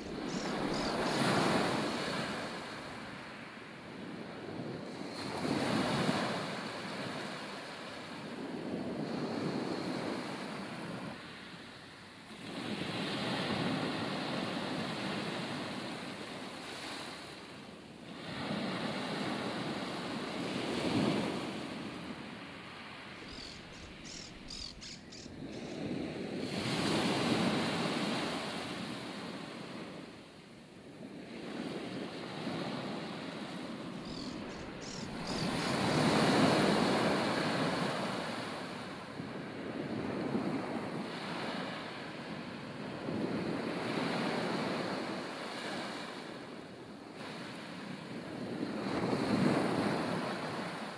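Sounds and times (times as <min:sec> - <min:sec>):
wind on microphone: 0:00.0 - 0:03.2, 0:18.2 - 0:30.2, 0:30.8 - 0:45.8
ocean surf breaking: 0:00.0 - 0:03.3, 0:32.2 - 0:38.8.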